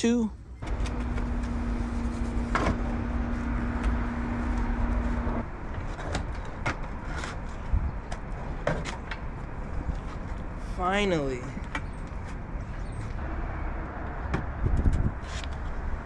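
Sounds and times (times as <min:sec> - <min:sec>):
constant low rumble: 0:00.0 - 0:16.0
steady hum: 0:00.6 - 0:05.5.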